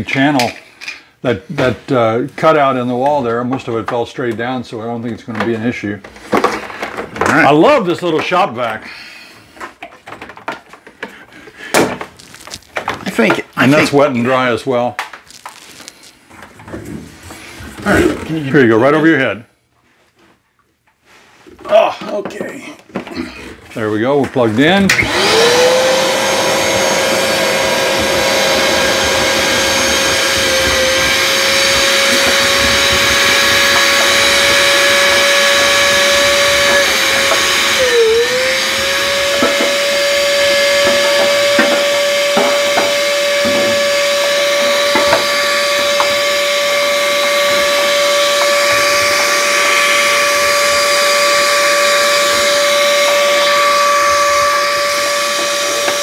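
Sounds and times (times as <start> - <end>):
debris rattling up a hose: 9.7 - 14.4, 15.0 - 16.6, 25.2 - 56.0
shop vacuum whining: 21.4 - 56.0.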